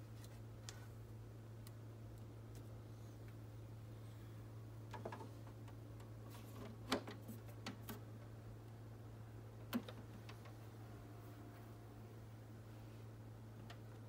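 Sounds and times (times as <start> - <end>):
low hum: 7.4 - 14.0.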